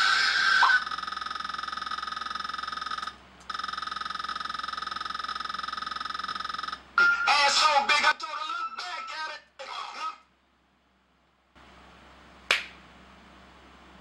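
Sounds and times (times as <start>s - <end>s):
harsh pulsing electronic buzzer: 0.0s - 7.4s.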